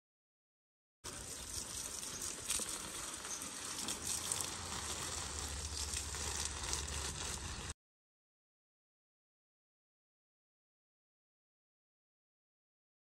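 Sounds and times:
hose water splashing on plants: 1.1s - 7.8s.

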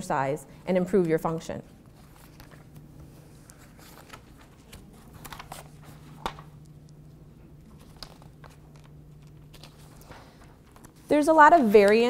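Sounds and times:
low steady hum: 0.0s - 12.0s
paper shuffling and rustling: 1.7s - 6.6s, 7.6s - 12.0s.

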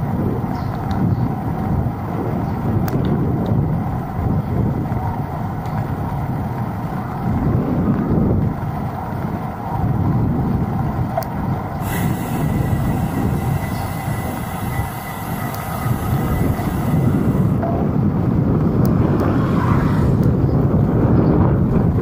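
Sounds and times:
road noise from bike: 0.0s - 22.0s
wind rumbling on microphone: 0.0s - 22.0s
steady high whine with hiss: 11.8s - 17.6s.

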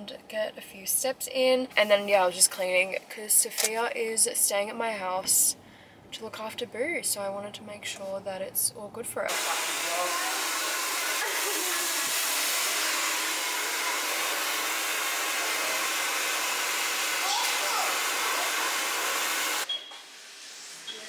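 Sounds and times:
hair dryer running: 9.3s - 19.7s.

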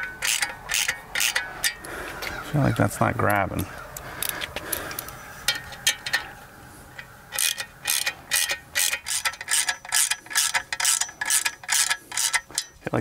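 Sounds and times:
ratchet wrench clicking: 0.0s - 1.8s, 7.0s - 12.8s.

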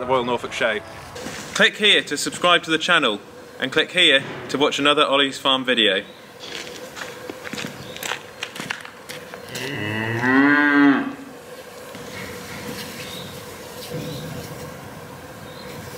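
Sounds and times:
cow mooing: 9.5s - 11.3s.

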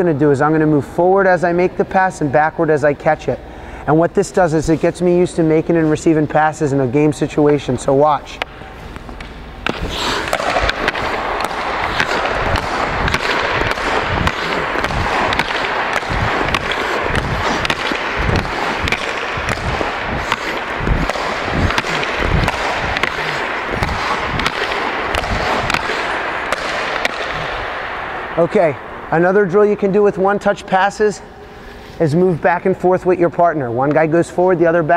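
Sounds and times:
hockey puck clacking on sticks: 4.3s - 28.5s
skate blades scraping ice: 8.5s - 27.7s.

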